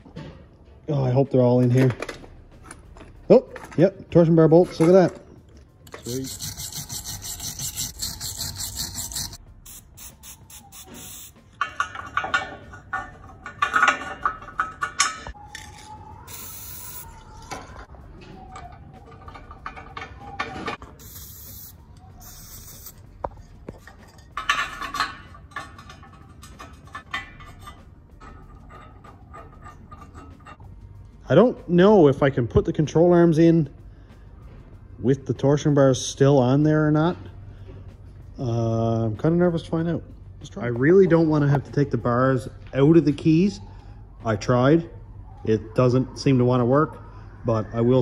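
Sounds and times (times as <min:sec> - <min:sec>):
wire brush scrubbing metal: 0:05.9 - 0:12.3, 0:21.0 - 0:23.0.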